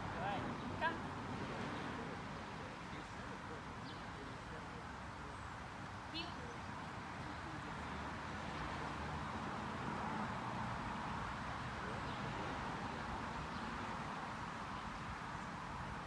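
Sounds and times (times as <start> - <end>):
steady outdoor hiss: 0.0 - 16.0.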